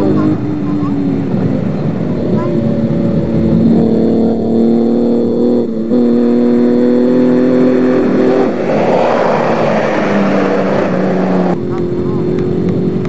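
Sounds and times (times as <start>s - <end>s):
racing pickup engine revving: 0.0s - 13.0s
loud rush of noise: 7.4s - 12.4s.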